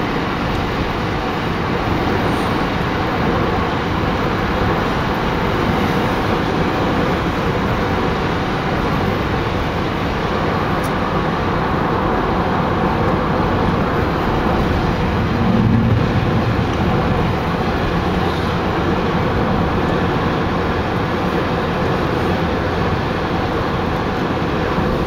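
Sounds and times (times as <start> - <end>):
car road and engine noise: 0.0 - 25.0.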